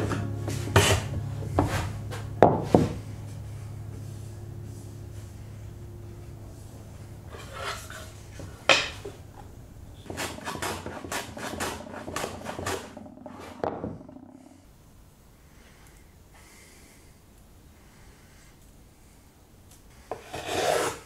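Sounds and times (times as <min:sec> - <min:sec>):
hand plane shaving wood: 0:00.2 - 0:03.0, 0:07.3 - 0:08.6, 0:10.0 - 0:13.2, 0:20.1 - 0:21.0
hand plane knocking on wood: 0:10.0 - 0:14.0.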